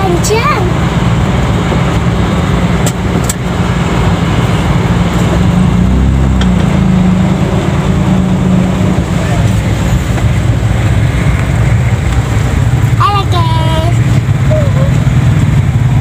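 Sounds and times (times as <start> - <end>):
car engine running: 0.0 - 16.0
street traffic: 0.0 - 16.0.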